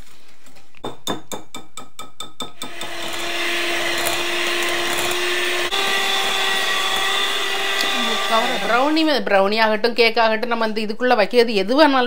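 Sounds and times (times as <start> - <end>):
electric hand mixer running: 2.6 - 9.3.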